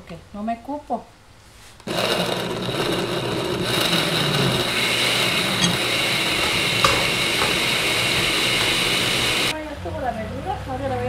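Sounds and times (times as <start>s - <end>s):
electric blender running: 1.8s - 9.5s.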